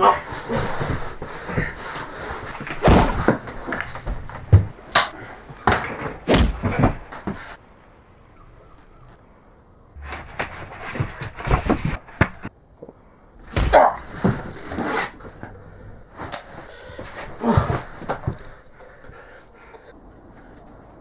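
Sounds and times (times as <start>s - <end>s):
scuffling: 13.4s - 19.3s.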